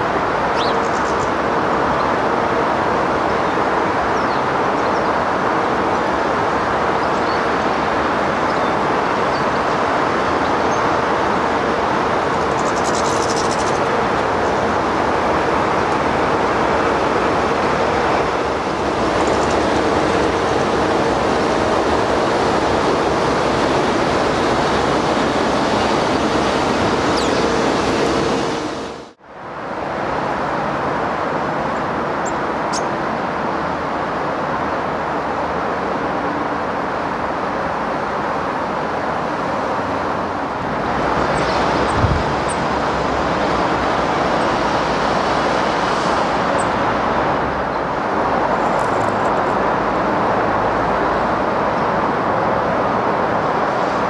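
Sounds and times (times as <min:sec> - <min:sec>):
steady loud rushing noise: 0:00.0 - 0:54.0.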